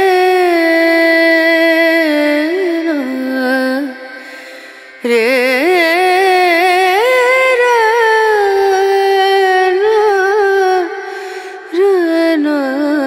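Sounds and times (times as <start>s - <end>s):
person singing with vibrato: 0.0s - 13.0s.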